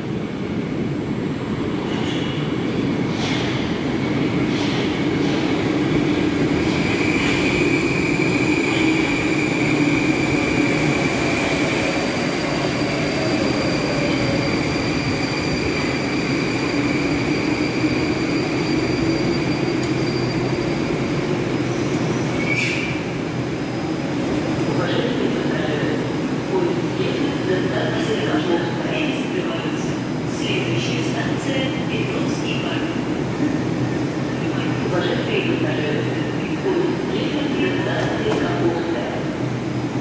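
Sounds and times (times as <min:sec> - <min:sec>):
train pulling into station: 0:00.0 - 0:40.0.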